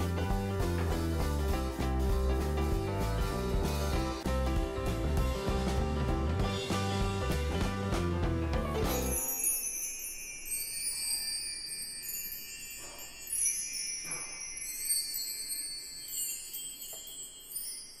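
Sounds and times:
tinkling chime-like music: 8.8 - 18.0.

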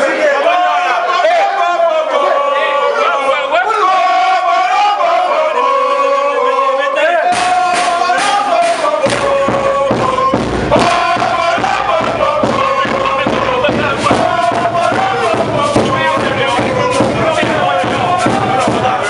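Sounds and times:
crowd chanting: 0.0 - 19.0
steady percussion beat: 7.3 - 19.0.

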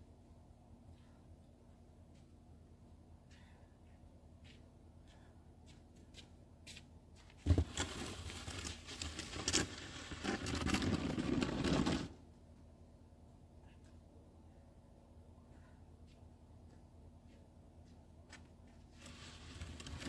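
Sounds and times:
snow shovel scraping pavement: 7.5 - 12.2, 19.0 - 20.0.

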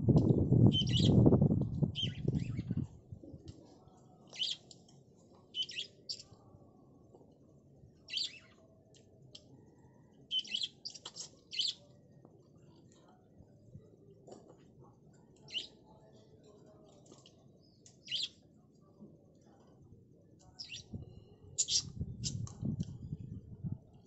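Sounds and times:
small birds chirping: 0.7 - 1.2, 1.9 - 2.8, 4.1 - 4.8, 5.5 - 6.5, 8.1 - 8.6, 10.3 - 12.0, 15.3 - 18.5, 20.4 - 23.0.

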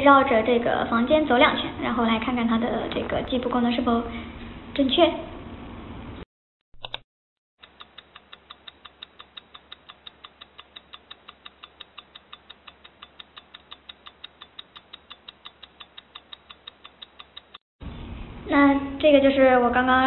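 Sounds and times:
rapid even clicking: 7.6 - 17.6.

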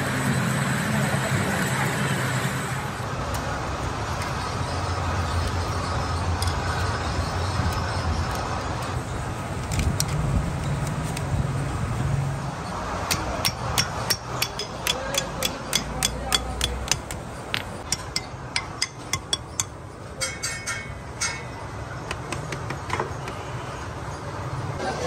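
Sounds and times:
hammer tapping steel: 13.0 - 23.4
ringing metal clinks: 17.8 - 21.6.

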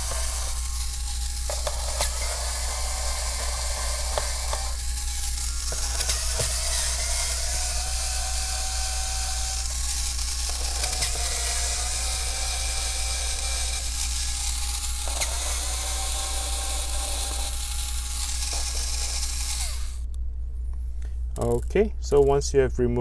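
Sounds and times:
electric screwdriver whirring: 0.0 - 20.1
low hum: 0.0 - 23.0.

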